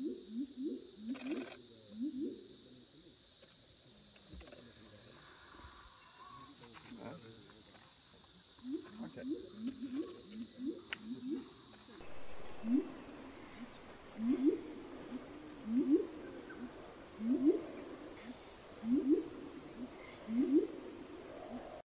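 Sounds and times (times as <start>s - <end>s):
bird calling low rising notes: 10.7s - 21.8s.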